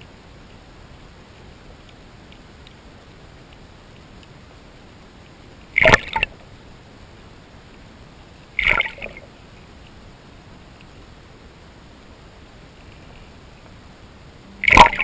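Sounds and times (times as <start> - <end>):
underwater splashes: 5.7 - 6.4, 8.6 - 9.4, 14.5 - 15.0.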